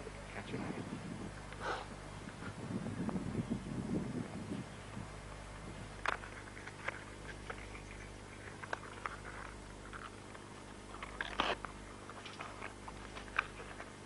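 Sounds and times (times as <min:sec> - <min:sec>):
steady low hum: 0:00.0 - 0:14.0
dry grass crackling and snapping: 0:06.0 - 0:14.0.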